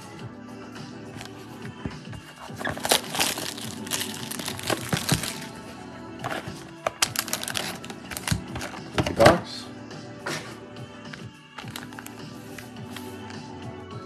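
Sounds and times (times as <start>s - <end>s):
background music: 0.0s - 14.0s
packaging crinkling: 2.4s - 5.6s, 6.2s - 8.9s, 11.6s - 12.2s.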